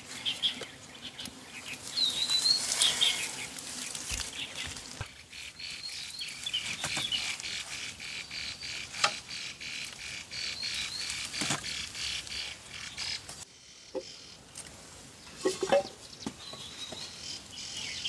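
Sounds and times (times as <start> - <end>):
high insect drone: 0.0 - 6.4
birds chirping: 0.0 - 14.6, 15.2 - 18.0.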